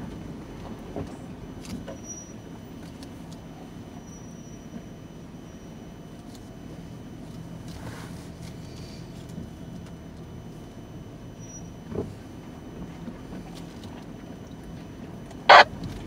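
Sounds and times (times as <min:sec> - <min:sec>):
vehicle engine humming: 0:12.0 - 0:16.0.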